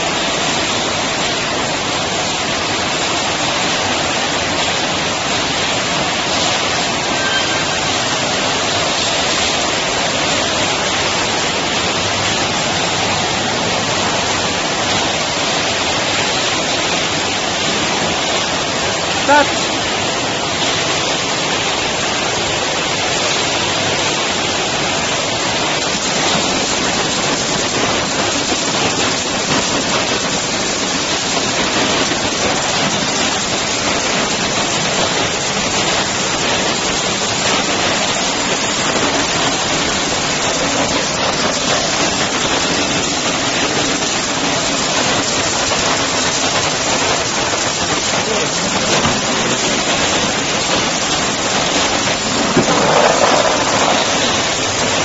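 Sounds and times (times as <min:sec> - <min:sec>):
sorting machine hissing: 0:48.7 - 0:55.0.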